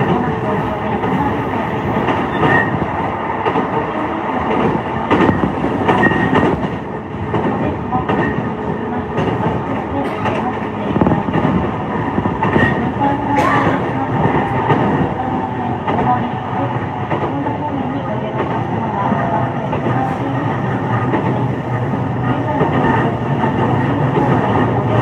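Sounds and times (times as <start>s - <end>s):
train wheels rumbling on rail: 0.0s - 25.0s
clacks over rail joints: 4.5s - 15.1s.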